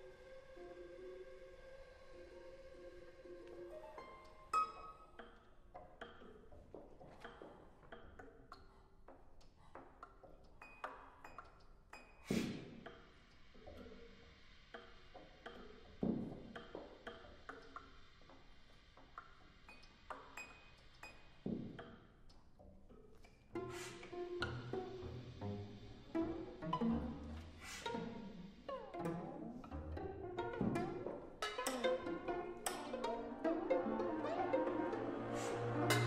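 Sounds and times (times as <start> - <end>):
sparse chamber ensemble music: 0.0 - 6.6, 23.5 - 36.0.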